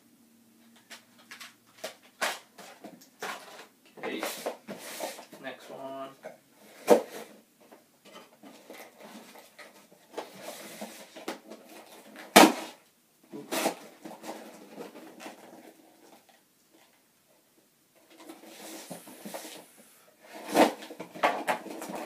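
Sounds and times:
cardboard scraping and rustling: 1.3s - 5.6s, 6.6s - 7.4s, 8.0s - 16.4s, 18.0s - 22.0s
knife cutting packing tape: 13.4s - 13.8s.

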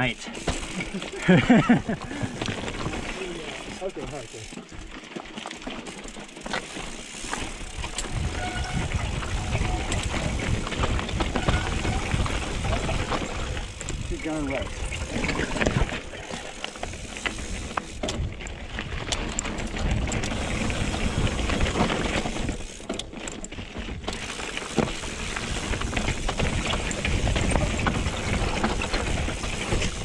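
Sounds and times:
bike tyres rolling over rock: 0.0s - 30.0s
bike knocks and rattles: 0.4s - 30.0s
wind rumble on microphone: 7.7s - 16.0s, 18.0s - 22.6s, 25.5s - 30.0s.

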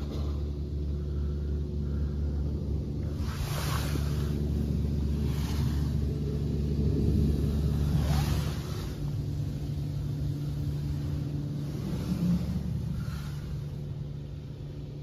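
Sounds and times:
low machine hum: 0.0s - 15.0s
rotating brushes swishing: 2.7s - 15.0s.

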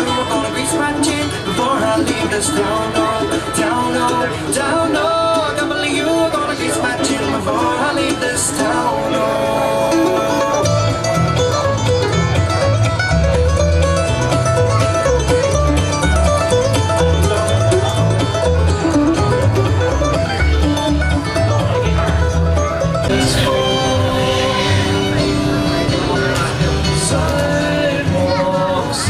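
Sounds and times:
folk band plucked strings: 0.0s - 29.0s
bass line: 6.1s - 29.0s.

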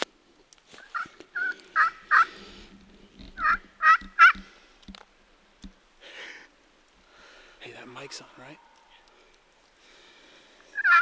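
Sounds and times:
turkey calls: 0.8s - 4.6s, 7.8s - 9.4s, 10.6s - 11.0s.

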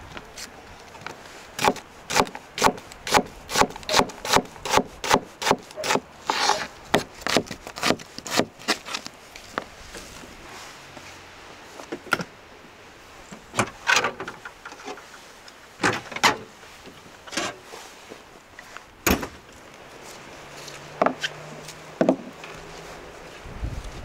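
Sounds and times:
steady background hiss: 0.0s - 24.0s
sharp knocks and clunks: 19.0s - 19.4s, 22.0s - 22.4s.

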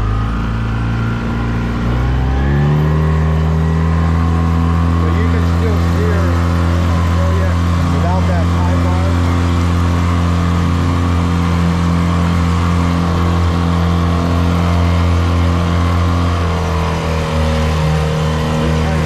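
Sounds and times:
outboard engine droning: 0.0s - 19.0s.

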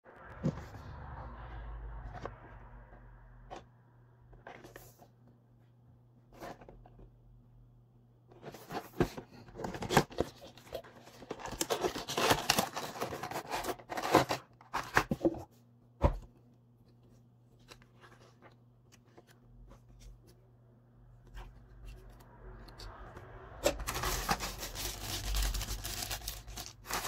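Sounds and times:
plastic packaging crinkling: 9.8s - 15.0s, 23.6s - 27.0s.

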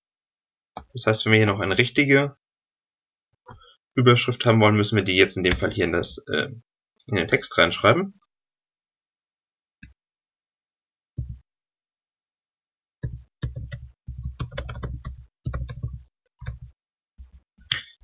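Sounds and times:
computer keyboard typing: 13.0s - 16.8s.

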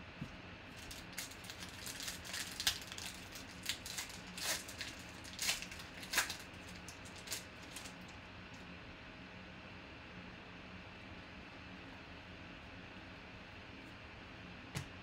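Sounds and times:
foil wrapper crinkling and tearing: 0.7s - 8.2s.

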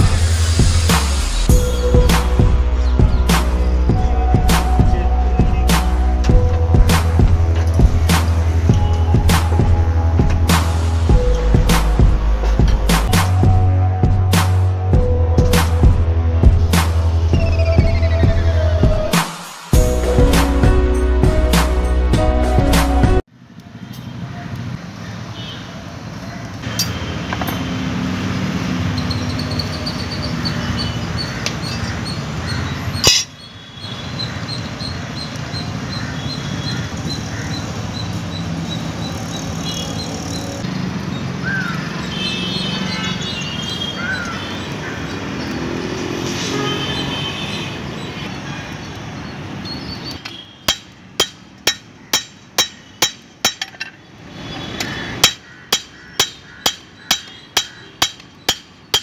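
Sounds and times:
hammer striking steel on anvil: 33.0s - 33.4s, 50.7s - 54.0s, 55.2s - 59.0s.

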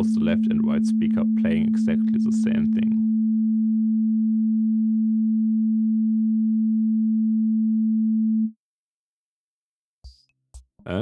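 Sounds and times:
pure sine tone: 0.0s - 8.6s.

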